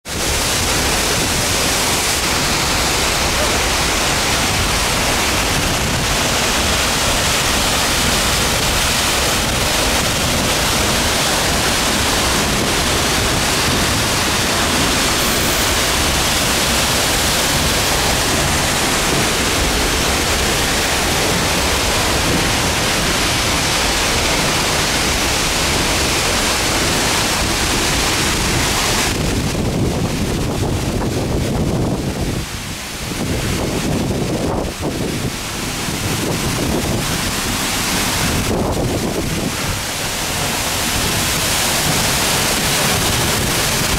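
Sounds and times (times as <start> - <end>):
waterfall rushing: 0.0 - 43.9.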